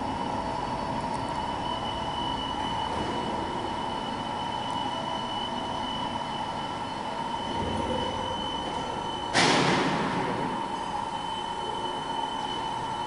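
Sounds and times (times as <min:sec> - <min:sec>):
high whine: 0:00.0 - 0:13.0
machinery humming: 0:00.0 - 0:13.0
sudden loud burst of noise: 0:09.3 - 0:10.6.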